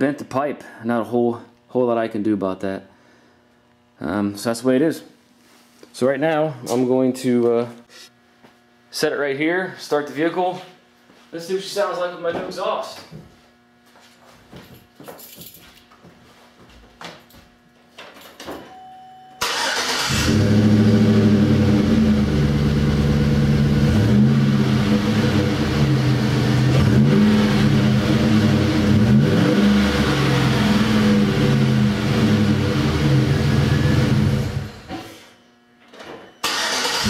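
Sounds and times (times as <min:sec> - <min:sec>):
truck engine starting and idling: 0:19.4 - 0:34.9, 0:36.4 - 0:37.0.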